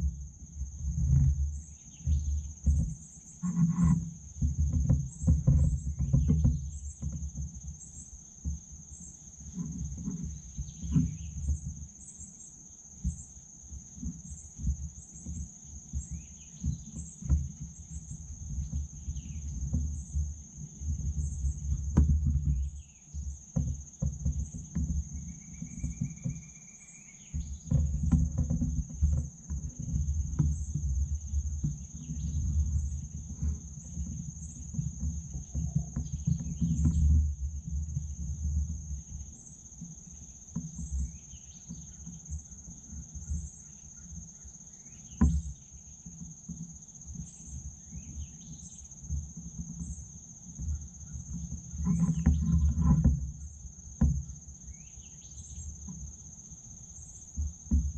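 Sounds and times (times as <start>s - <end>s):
low rumbling on microphone: 0.0s - 11.9s, 13.8s - 44.3s, 45.0s - 57.9s
high insect drone: 0.0s - 57.9s
bird calls: 24.5s - 27.8s.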